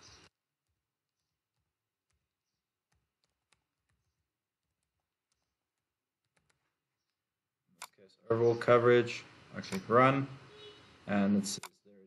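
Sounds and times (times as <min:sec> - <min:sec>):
faint keyboard keystrokes: 0:01.5 - 0:07.2.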